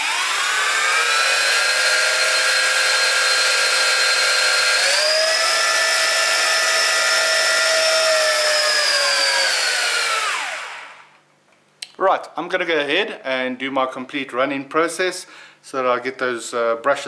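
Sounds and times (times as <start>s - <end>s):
drone motors whining: 0.0s - 11.1s.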